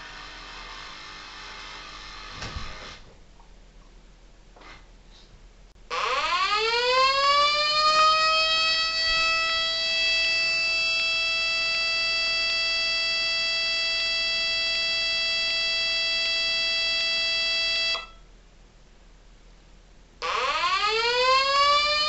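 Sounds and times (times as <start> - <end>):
electronic siren wailing: 5.9 - 18.2, 20.2 - 22.0.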